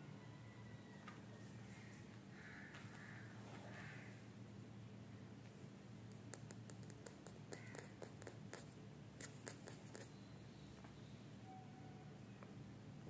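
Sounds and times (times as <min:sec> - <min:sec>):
kitten claws clicking on tile: 0:06.1 - 0:10.1.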